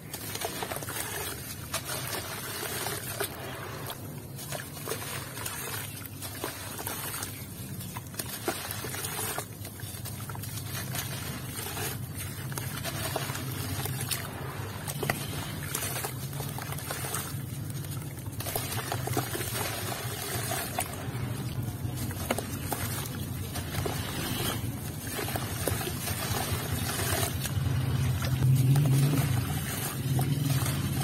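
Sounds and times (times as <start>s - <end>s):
wet dirt crunching by hand: 17.8s - 31.0s.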